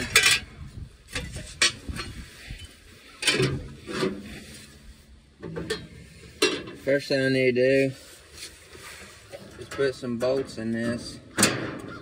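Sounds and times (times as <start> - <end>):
rubbing and scraping: 0.0 - 11.2.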